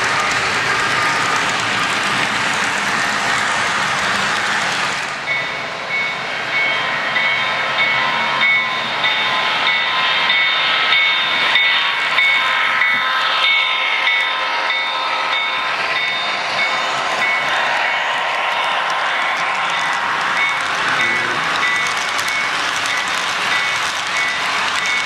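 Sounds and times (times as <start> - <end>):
model train rolling on track: 0.0 - 25.0
model locomotive bell ringing: 5.2 - 17.6.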